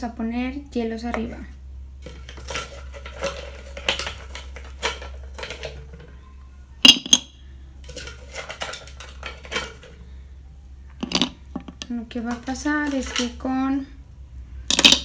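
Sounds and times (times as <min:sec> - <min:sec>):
ice cubes clinking on lid: 0:02.0 - 0:06.1, 0:06.9 - 0:10.0, 0:14.7 - 0:15.0.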